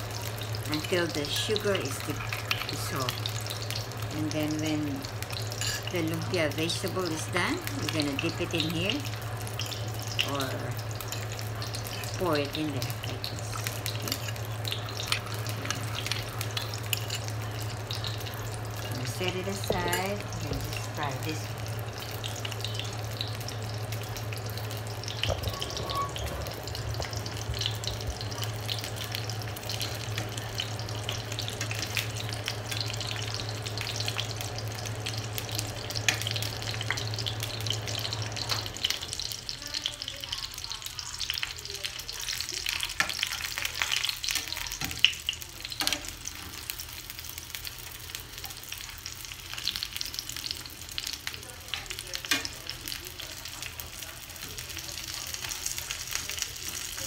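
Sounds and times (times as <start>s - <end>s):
low steady hum: 0.0s - 44.7s
food sizzling in hot oil: 0.0s - 57.0s
metal tongs clicking on pan: 13.3s - 18.1s, 42.3s - 46.2s, 51.2s - 52.7s.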